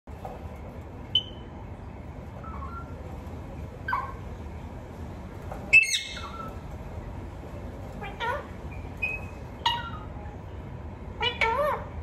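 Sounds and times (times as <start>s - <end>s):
steady low hum: 0.1s - 12.0s
parakeet calling: 1.1s - 1.5s, 2.4s - 3.0s, 3.8s - 4.3s, 5.7s - 6.6s, 8.0s - 10.2s, 11.2s - 12.0s.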